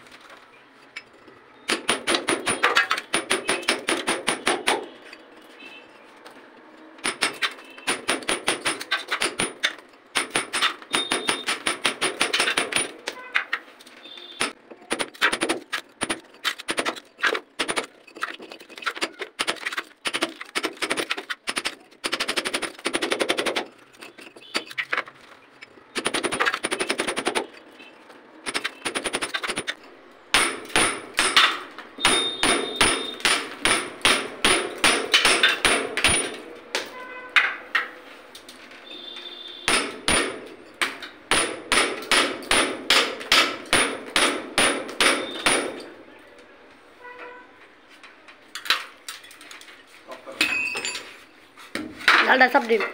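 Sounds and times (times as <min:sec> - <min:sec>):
hammer striking a chisel: 0:01.7 - 0:05.2, 0:07.0 - 0:13.5, 0:14.1 - 0:24.9, 0:28.4 - 0:37.6, 0:39.6 - 0:46.0.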